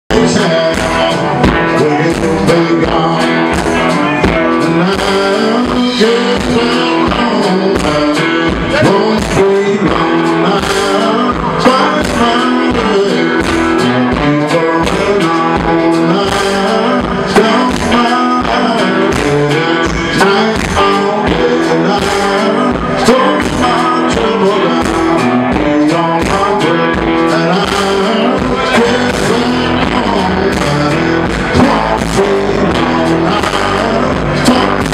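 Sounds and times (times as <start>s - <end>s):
bass guitar: 0.0s - 34.9s
drums beat: 0.1s - 34.9s
electric guitars: 0.1s - 34.9s
lead vocal singing: 0.1s - 34.9s.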